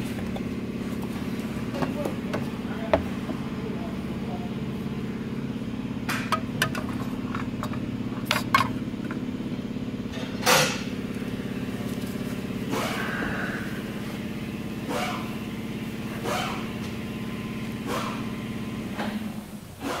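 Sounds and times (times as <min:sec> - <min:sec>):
low motor drone: 0:00.0 - 0:19.2
sharp clicks and knocks: 0:06.1 - 0:09.2.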